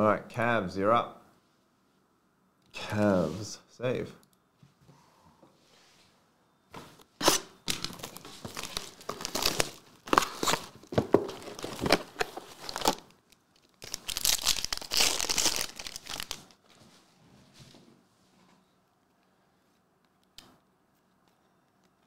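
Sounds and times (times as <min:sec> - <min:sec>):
foil wrappers tearing and crinkling: 0:07.2 - 0:16.6.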